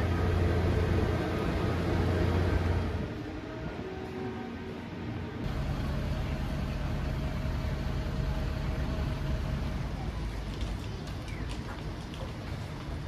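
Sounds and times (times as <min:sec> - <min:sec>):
car engine idling: 0:00.0 - 0:03.1, 0:05.5 - 0:10.8.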